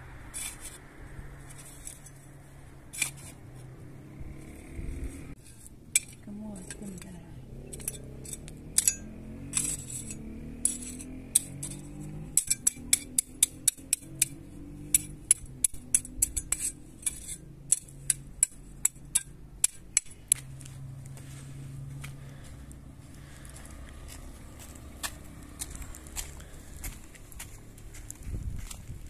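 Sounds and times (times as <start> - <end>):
trowel scraping stony soil: 0.2 - 22.5.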